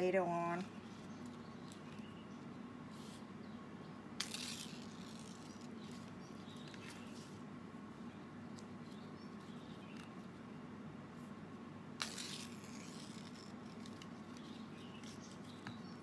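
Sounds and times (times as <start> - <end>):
leaf tearing and rustling: 12.0 - 15.5.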